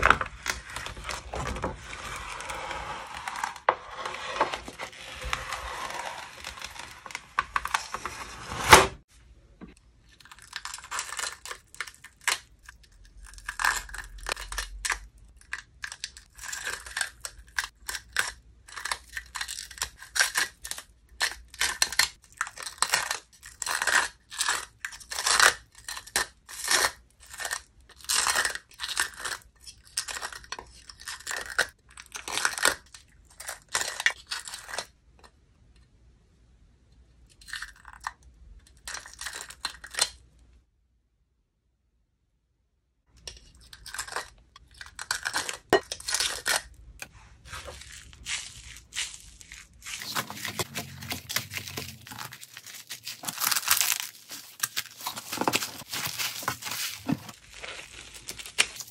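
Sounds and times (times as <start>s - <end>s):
dried slime crackling: 47.4s - 58.9s.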